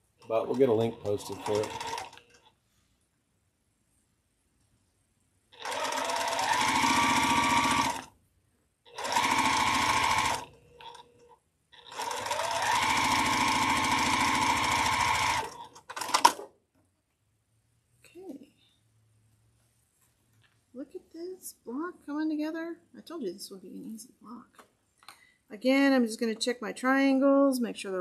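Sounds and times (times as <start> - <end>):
sewing machine motor whine: 0.6 - 2.2, 5.6 - 8.1, 8.9 - 11.1, 11.8 - 16.3.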